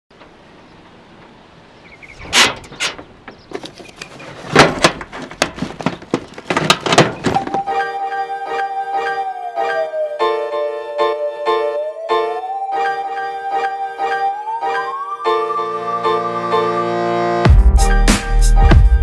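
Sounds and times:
metal knocks and clunks in toolbox: 2.2 - 7.7
keyboard music: 7.3 - 19.0.

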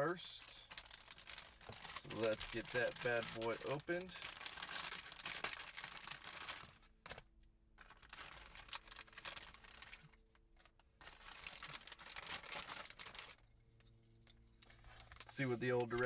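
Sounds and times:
plastic bag crinkling: 0.4 - 7.2, 7.8 - 13.5.

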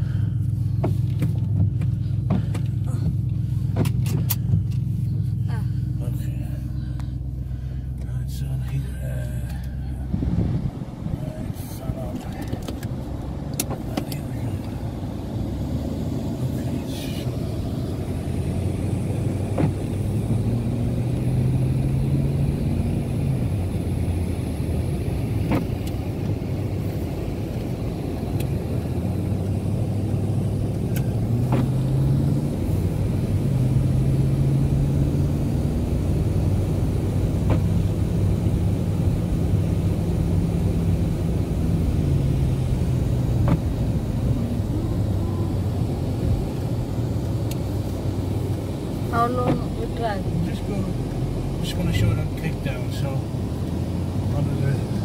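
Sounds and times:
car engine accelerating: 0.0 - 55.0
windscreen wiper click: 0.8 - 5.0, 12.0 - 14.8, 19.3 - 20.1, 25.2 - 32.3, 37.2 - 38.0, 41.8 - 44.3, 46.0 - 50.2.

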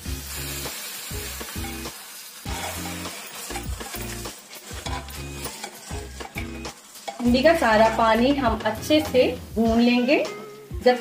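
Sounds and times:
meat sizzling in oil: 0.0 - 10.3
background music with steady beat: 0.0 - 11.0
ladle stirring: 2.5 - 8.1.

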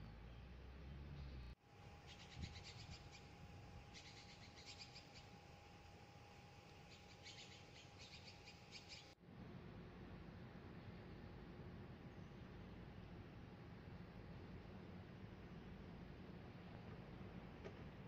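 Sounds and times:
small birds chirping: 0.0 - 5.4, 6.8 - 9.2
faint steady hum: 0.0 - 18.0.

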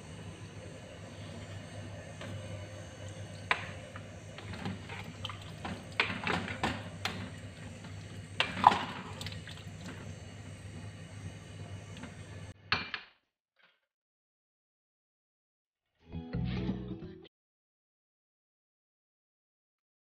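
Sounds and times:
low steady hum: 0.0 - 12.6
liquid sloshing in a pot: 3.0 - 10.2.

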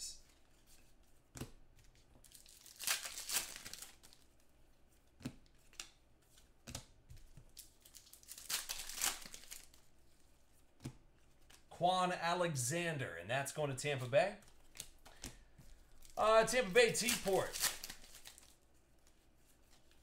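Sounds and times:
wrappers crinkling: 2.2 - 4.2, 7.5 - 9.8, 14.6 - 19.7
card pack wrappers tearing: 2.3 - 4.2, 7.6 - 9.8, 15.9 - 18.6.

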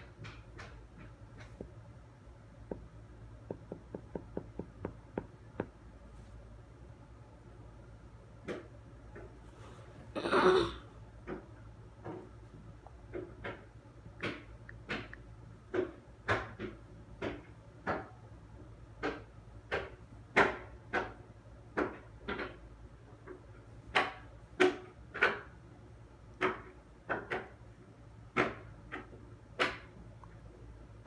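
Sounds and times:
faint low hum: 0.0 - 31.0
sharp taps and knocks: 2.6 - 5.8, 13.1 - 18.2, 26.4 - 27.6, 28.3 - 30.3.

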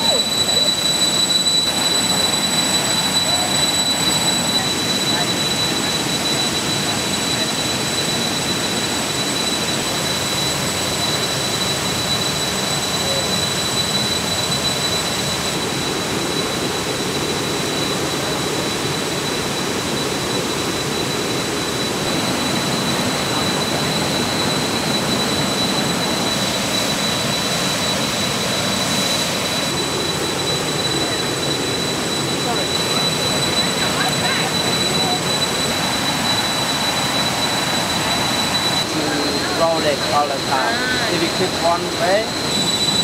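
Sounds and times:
thin high whine: 0.0 - 43.0
steady rushing noise: 19.3 - 43.0.

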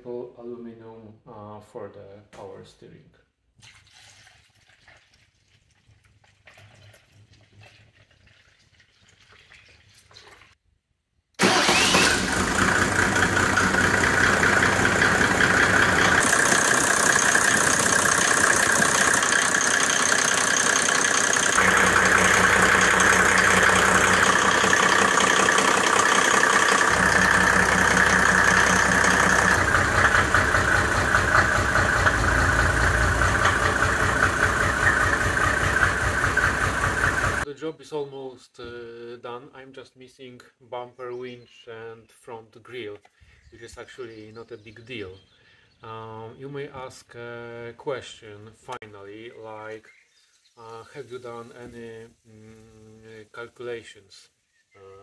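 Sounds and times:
diesel engine starting and idling: 11.4 - 37.4.

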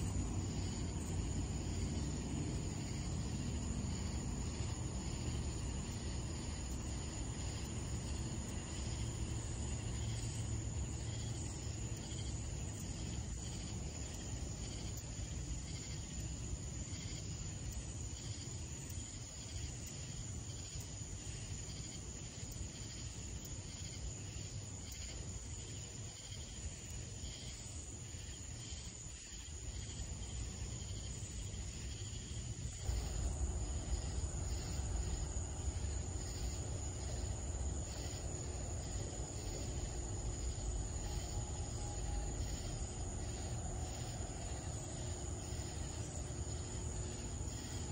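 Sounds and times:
crickets trilling: 0.0 - 47.9
pulsed insect calls: 0.0 - 47.9
low rumble: 32.7 - 47.4.

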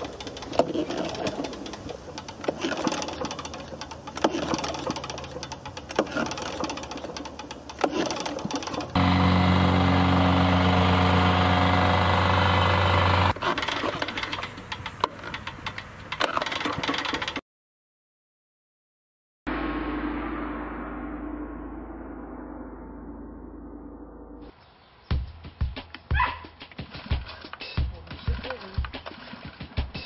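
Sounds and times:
plate compactor engine: 0.0 - 17.4.

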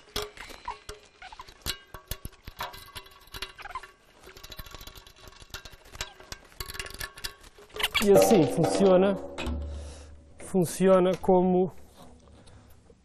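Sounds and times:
short squeaks: 0.3 - 1.6, 3.5 - 4.0
drum hardware clicks and clinks: 7.9 - 11.3.

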